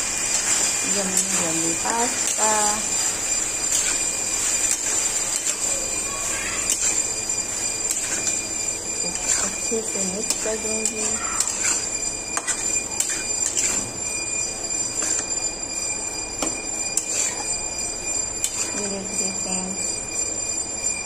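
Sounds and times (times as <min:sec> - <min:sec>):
steady high-pitched whine: 0:00.0 - 0:21.0
spoon clinking and scraping pan: 0:00.3 - 0:08.5, 0:09.1 - 0:13.9.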